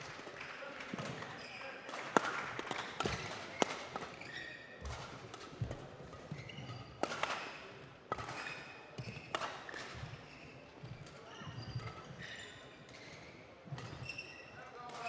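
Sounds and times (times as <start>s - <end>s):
racket striking shuttlecock: 1.9s - 4.2s, 4.8s - 7.5s, 9.1s - 10.0s
shoes squeaking on court floor: 3.0s - 5.0s, 6.0s - 7.1s, 8.4s - 14.6s.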